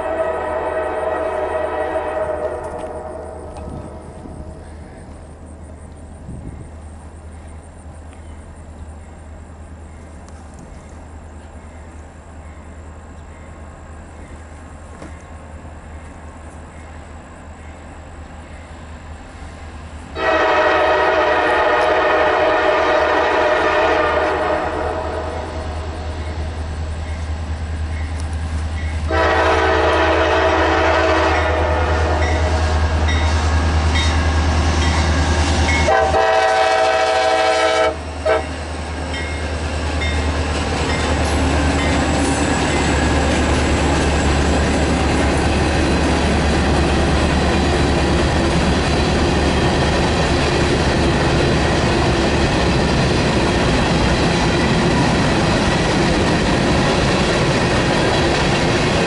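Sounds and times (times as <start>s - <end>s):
train horn blasts: 0.0s - 4.5s, 20.2s - 26.5s, 29.0s - 34.2s, 34.8s - 39.4s
diesel locomotive engines running: 0.0s - 59.0s
train wheels on rails: 0.0s - 59.0s.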